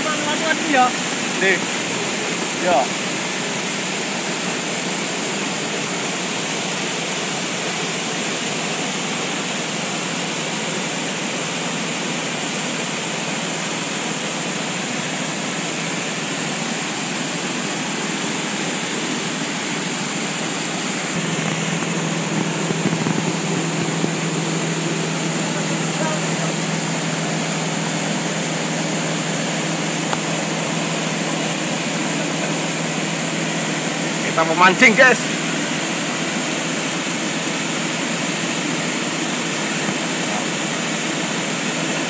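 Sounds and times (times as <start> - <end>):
waterfall rushing into pool: 0.0 - 42.0.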